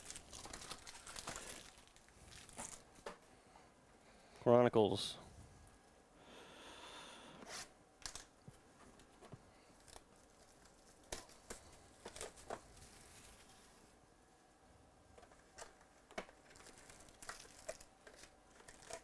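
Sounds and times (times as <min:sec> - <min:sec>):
plastic wrap tearing and crinkling: 0:00.0 - 0:03.0, 0:16.4 - 0:19.0.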